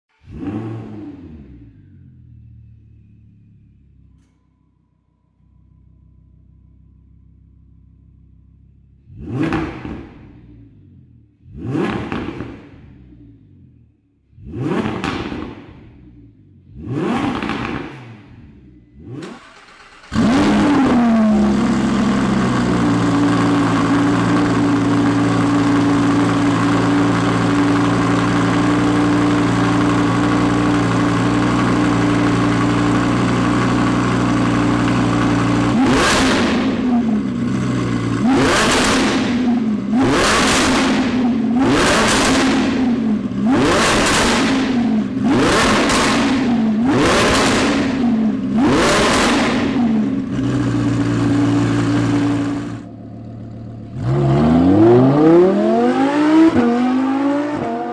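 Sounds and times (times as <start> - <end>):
car engine idling: 1.4 - 11.5, 17.4 - 54.1
engine throttle blips: 14.4 - 52.9.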